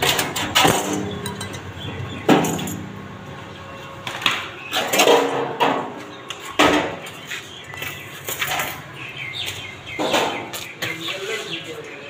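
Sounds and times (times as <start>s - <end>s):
metal box clanking and rattling: 0.0s - 2.9s
metallic knocks ringing: 0.0s - 3.1s.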